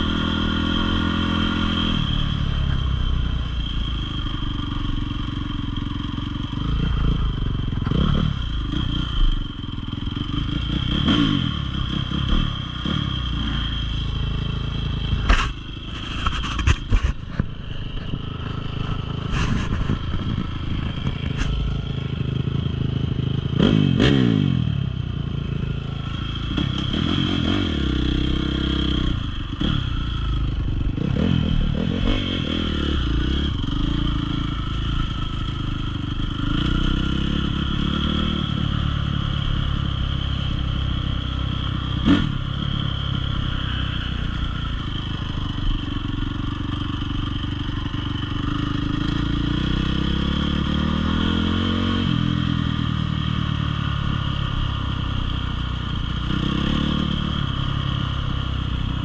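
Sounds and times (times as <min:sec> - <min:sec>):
dirt bike engine revving: 0:06.5 - 0:09.4, 0:10.2 - 0:16.9, 0:23.4 - 0:24.8, 0:25.7 - 0:40.8, 0:41.6 - 0:45.8, 0:48.4 - 0:52.9, 0:56.2 - 0:58.1.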